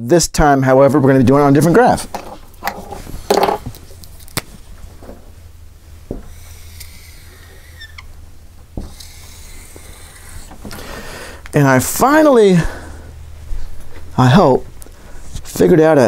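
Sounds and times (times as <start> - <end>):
markers clicking and knocking: 6.1 - 10.9
marker squeaking on whiteboard: 6.2 - 8.2, 8.8 - 10.8.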